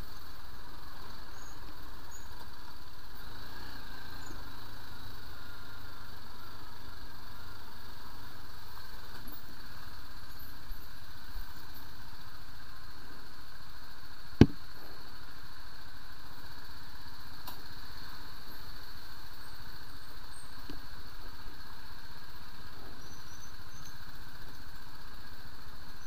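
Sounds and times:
motorcycle engine running: 0:00.0 - 0:17.2
sharp knock: 0:14.4 - 0:14.6.

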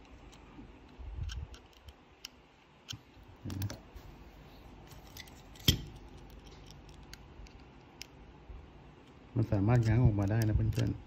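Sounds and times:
light plastic clicks: 0:09.8 - 0:11.0.

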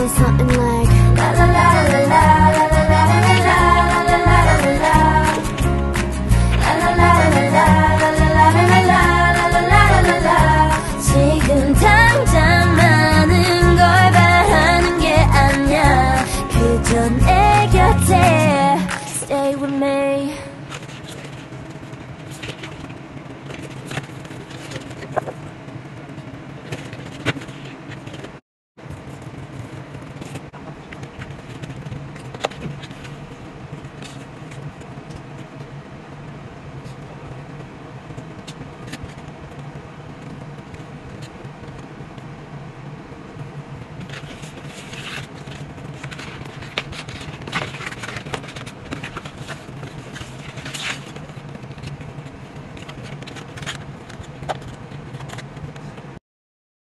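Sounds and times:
steady low hum: 0:00.0 - 0:56.2
paper and sleeves rustling: 0:20.6 - 0:25.4, 0:26.2 - 0:28.4, 0:29.0 - 0:35.5, 0:43.9 - 0:56.0.

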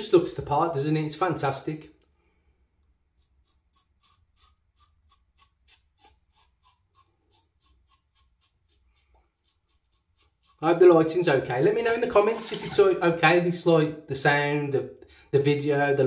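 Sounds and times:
razor scraping stubble: 0:03.0 - 0:13.0.

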